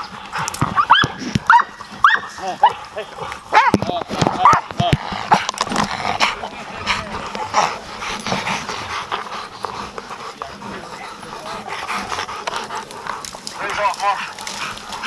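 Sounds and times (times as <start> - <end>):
brush rustling: 0.0 - 15.0
dog panting: 0.0 - 15.0.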